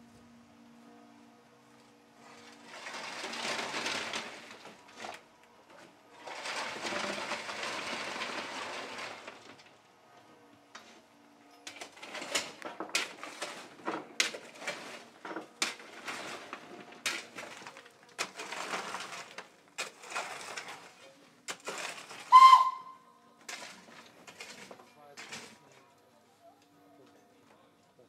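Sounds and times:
locomotive whistle: 0:22.3 - 0:23.2.

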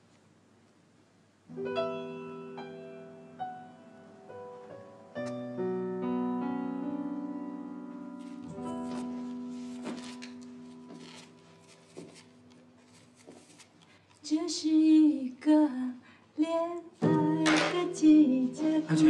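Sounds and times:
soft piano music: 0:01.5 - 0:13.2, 0:16.9 - 0:19.0.

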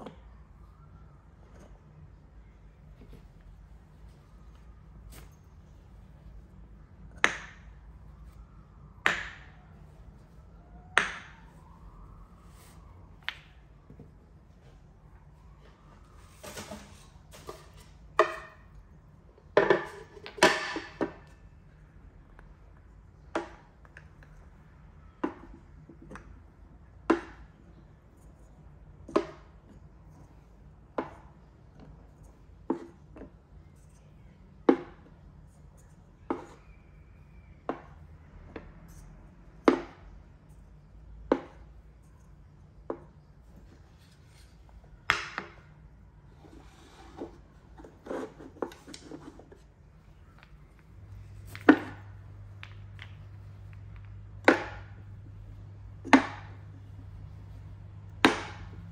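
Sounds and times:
wooden cups knocking into tray: 0:19.6 - 0:21.2, 0:45.1 - 0:45.7, 0:50.4 - 0:55.0, 0:56.0 - 0:56.7, 0:58.2 - 0:58.9.

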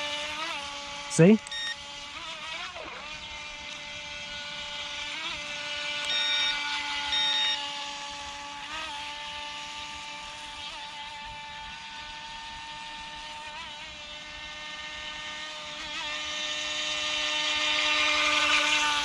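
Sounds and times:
electric boat motor whining: 0:00.0 - 0:19.0
short high beeps: 0:01.4 - 0:01.8, 0:06.1 - 0:07.6.

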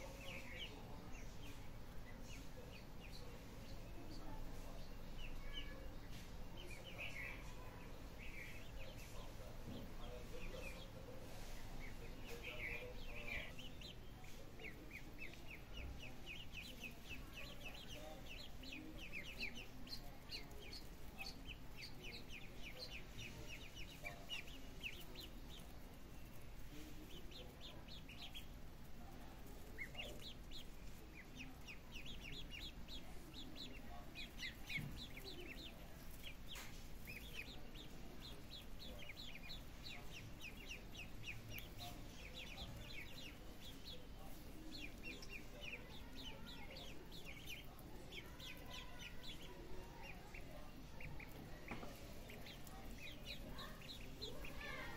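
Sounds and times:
ducklings peeping: 0:00.0 - 0:54.9.

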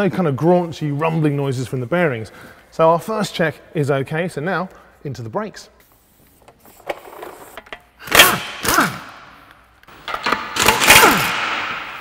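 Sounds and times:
impact wrench running: 0:08.0 - 0:09.1.

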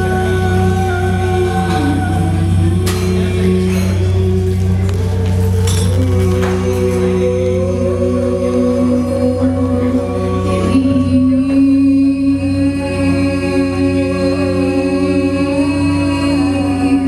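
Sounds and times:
steady low drone: 0:00.0 - 0:17.0
voices chanting long notes: 0:00.0 - 0:17.0.

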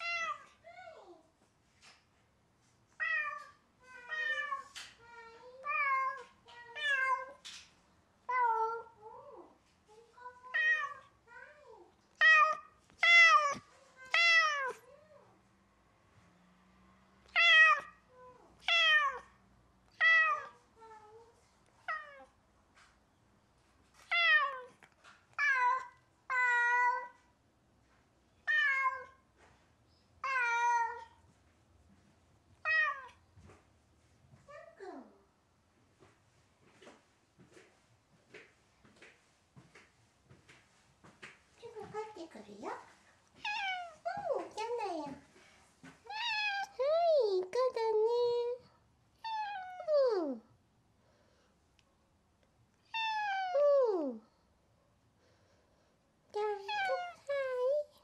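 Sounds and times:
cat meowing: 0:10.5 - 0:11.1, 0:12.2 - 0:14.9, 0:17.3 - 0:19.3, 0:20.0 - 0:21.1, 0:28.4 - 0:29.2, 0:32.6 - 0:33.2, 0:43.4 - 0:44.0, 0:46.0 - 0:46.8, 0:49.2 - 0:49.9, 0:52.8 - 0:53.7, 0:56.6 - 0:57.3.

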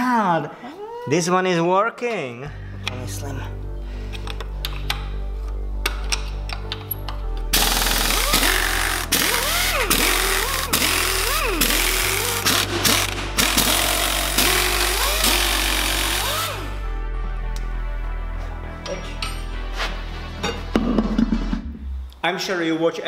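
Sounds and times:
background music: 0:00.0 - 0:23.0
impact wrench hammering: 0:07.6 - 0:16.7.

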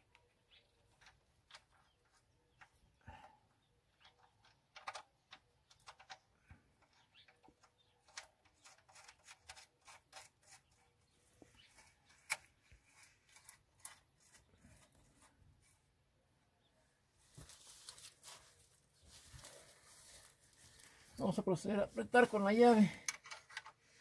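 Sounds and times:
small clicks: 0:04.0 - 0:10.6.

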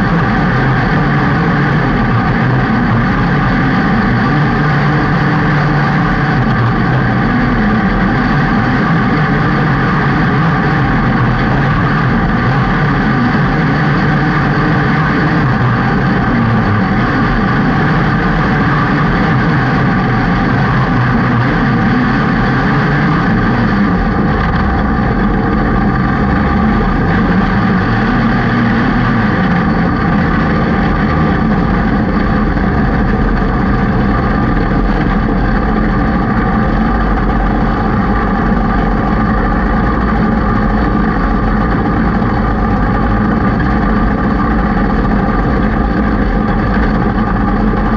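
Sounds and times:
race car engine: 0:00.0 - 0:47.9.

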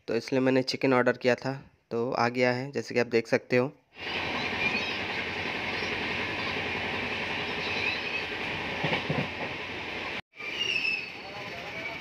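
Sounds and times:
train running noise: 0:04.0 - 0:12.0
faint high squeals: 0:10.4 - 0:12.0.

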